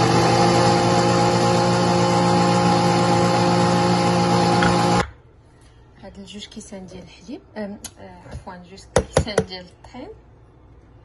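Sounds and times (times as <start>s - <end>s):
blender motor running: 0.0s - 5.0s.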